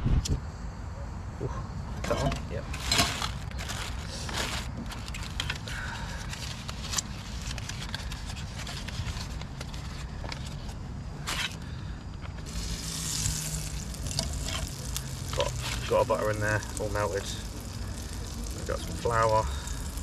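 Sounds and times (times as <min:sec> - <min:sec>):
clicks and scrapes of gear: 0:02.0 - 0:11.6
foil wrapper crinkling: 0:02.5 - 0:20.0.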